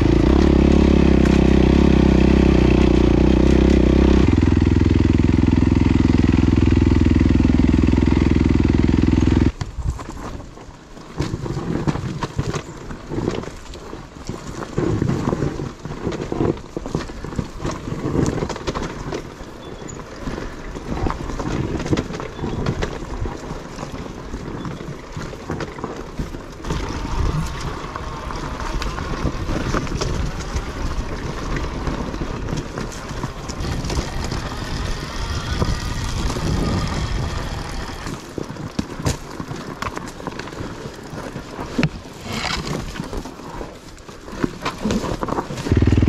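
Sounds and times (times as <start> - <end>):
dirt bike engine running: 0.0 - 9.7, 26.6 - 42.6, 44.9 - 46.0
wind buffeting microphone: 26.2 - 39.8.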